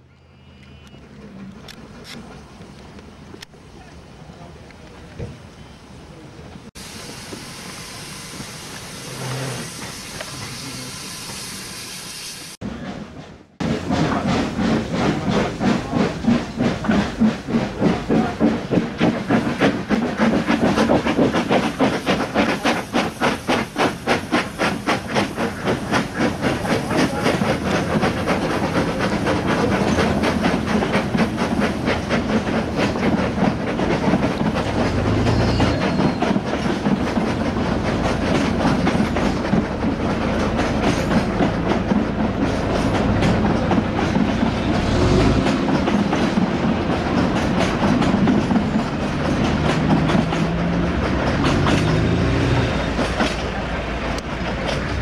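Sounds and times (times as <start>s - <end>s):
steam locomotive exhaust beats: 6.8s - 55.0s
wheels clattering on rail joints: 12.7s - 55.0s.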